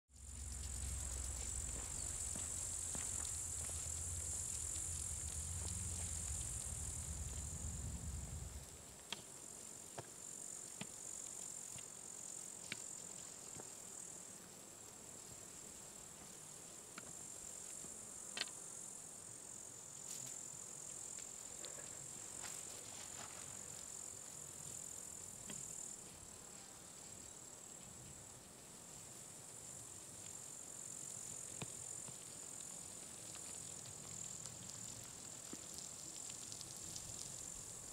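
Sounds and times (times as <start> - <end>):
low rumble: 0.1 - 8.8
insects chirring: 0.1 - 37.9.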